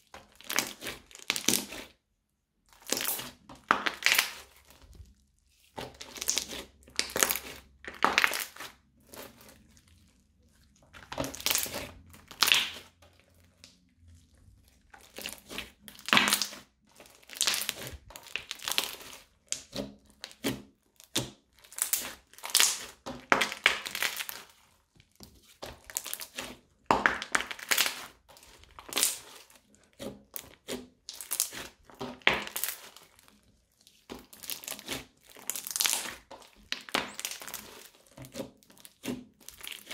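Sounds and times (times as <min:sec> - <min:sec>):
crunchy slime squeezed by hand: 0:02.7 - 0:05.2, 0:13.5 - 0:24.7, 0:30.2 - 0:39.9.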